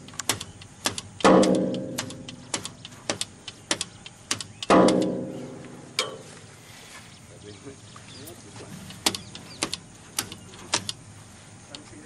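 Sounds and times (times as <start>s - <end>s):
metallic clicks and knocks: 0.0s - 6.3s, 8.8s - 11.0s
loud ringing metal clangs: 1.2s - 3.2s, 4.7s - 6.4s.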